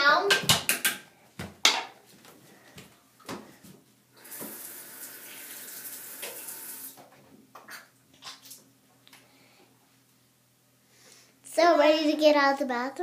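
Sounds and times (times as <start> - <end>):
tap water running into basin: 4.2 - 7.0.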